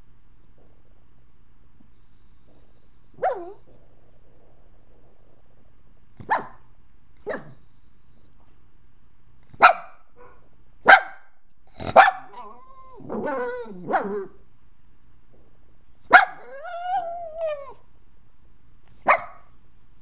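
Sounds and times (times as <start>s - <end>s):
dog whining: 2.0s - 3.8s, 11.8s - 14.4s, 16.2s - 17.9s
small dog barking: 3.2s - 3.7s, 6.2s - 7.6s, 9.6s - 14.4s, 16.1s - 17.8s, 19.0s - 19.6s.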